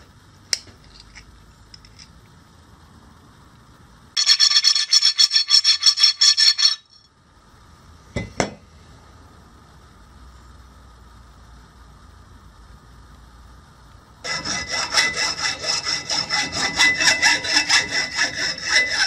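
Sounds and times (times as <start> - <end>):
file rasping on metal: 4.2 - 6.8, 14.2 - 19.0.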